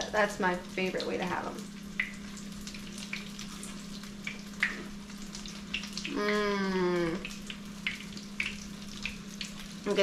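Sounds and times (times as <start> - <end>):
fish frying in hot oil: 0.0 - 10.0
woman humming mmm: 6.1 - 7.3.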